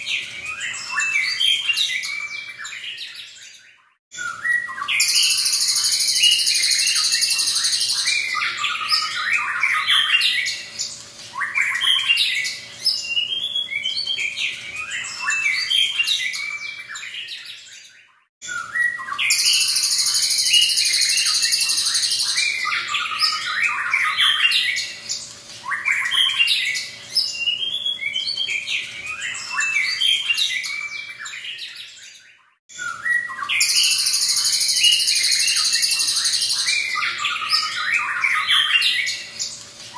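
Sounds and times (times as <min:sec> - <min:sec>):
bird whistling and chattering song: 0:00.0 - 0:39.9.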